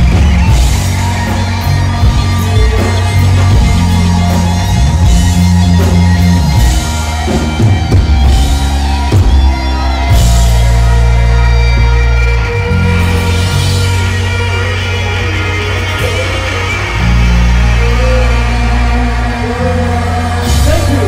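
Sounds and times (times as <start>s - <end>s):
bass guitar: 0.0s - 21.0s
drum kit: 0.0s - 21.0s
electric guitar: 0.0s - 21.0s.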